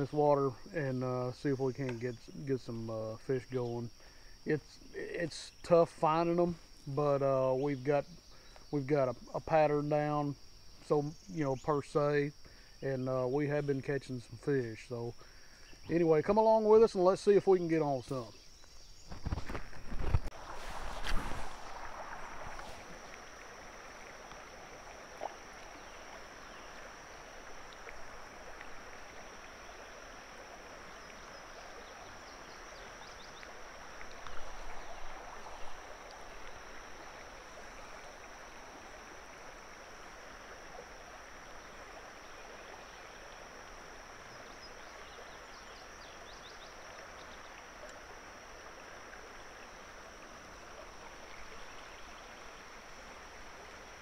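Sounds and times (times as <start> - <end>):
river water flowing over gravel: 17.6 - 54.0.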